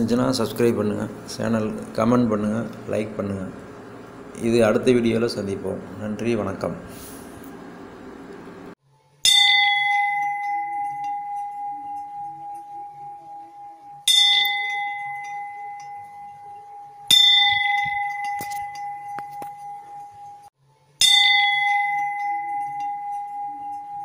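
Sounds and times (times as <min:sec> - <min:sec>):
bell ringing: 0:09.2 - 0:24.0.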